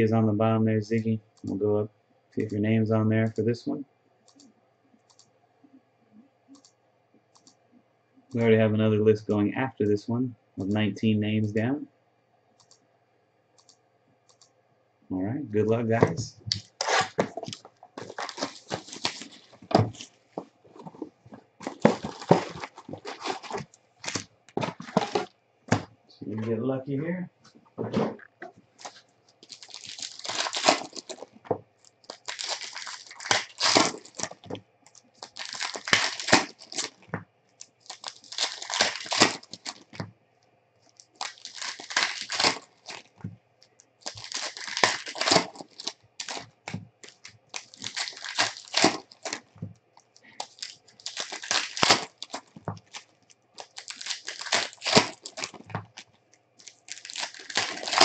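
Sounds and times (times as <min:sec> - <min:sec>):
wrappers tearing and crinkling: 0:16.5 - 0:25.3, 0:28.8 - 0:40.0, 0:40.8 - 0:43.2, 0:44.0 - 0:58.0.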